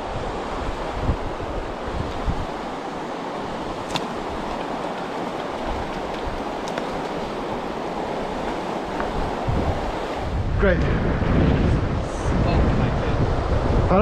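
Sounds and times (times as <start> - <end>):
river water rushing over rocks: 0.0 - 10.3.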